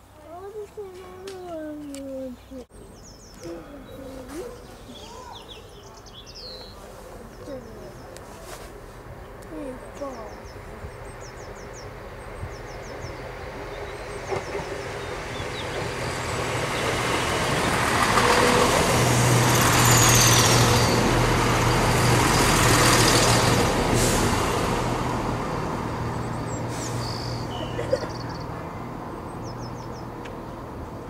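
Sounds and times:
train engine drone: 7.0s - 31.0s.

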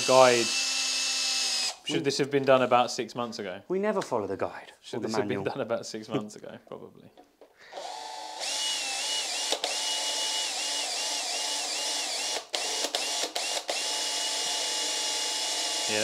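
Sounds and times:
cordless drill motor whining: 0.0s - 2.0s, 7.7s - 16.0s.

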